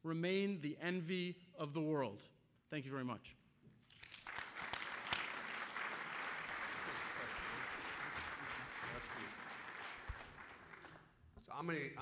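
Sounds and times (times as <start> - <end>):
audience applauding: 4.0 - 11.1.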